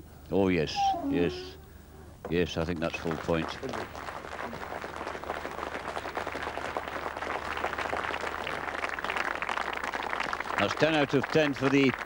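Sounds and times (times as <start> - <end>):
crowd applauding: 2.7 - 12.0.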